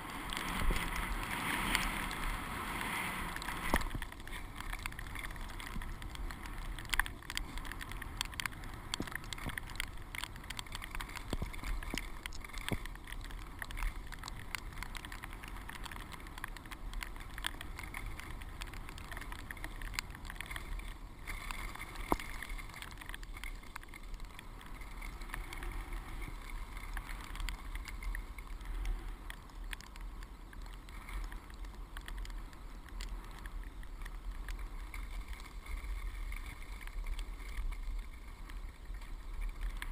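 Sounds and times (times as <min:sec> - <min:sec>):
skis swishing through snow: 0:00.0 - 0:06.8, 0:20.4 - 0:29.2, 0:30.0 - 0:39.9
wind rumble on microphone: 0:00.0 - 0:39.9.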